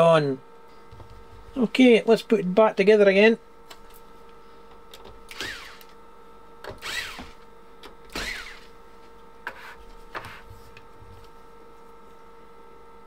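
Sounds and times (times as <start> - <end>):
faint electrical hum: 0.0 - 13.0
electric screwdriver whine: 5.3 - 6.0, 6.7 - 7.4, 8.1 - 8.7.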